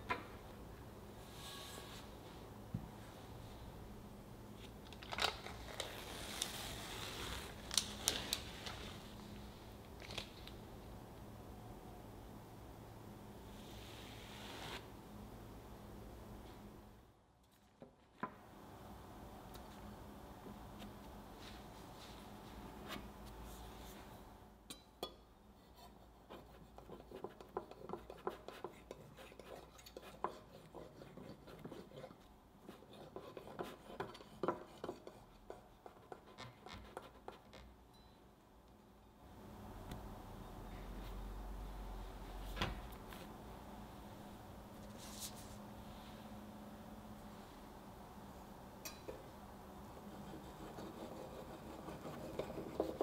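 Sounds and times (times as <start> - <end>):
parchment paper crinkling: 4.9 - 9.0.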